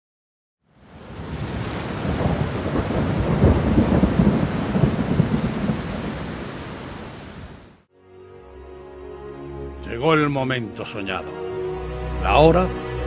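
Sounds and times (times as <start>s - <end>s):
rain hiss: 0.7s - 7.8s
thunder rolling: 0.9s - 7.8s.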